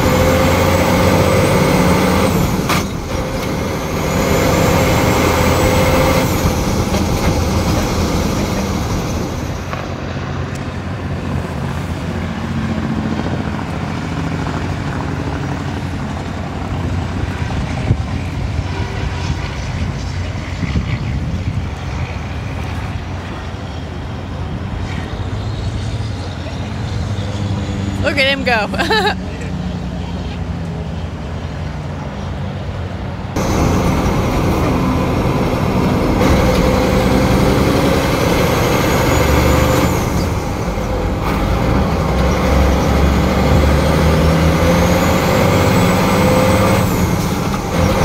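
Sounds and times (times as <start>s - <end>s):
diesel truck engine running hard: 0.0s - 48.0s
trucks running around track: 0.0s - 48.0s.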